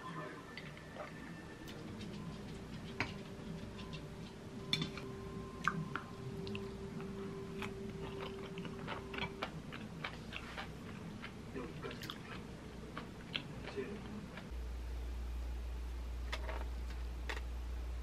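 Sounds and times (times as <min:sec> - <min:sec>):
quiet chewing: 0:01.0 - 0:14.5.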